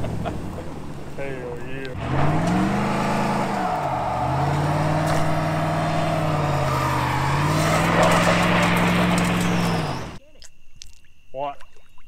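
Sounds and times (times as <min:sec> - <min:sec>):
engine revving at high revs: 0:01.9 - 0:10.2.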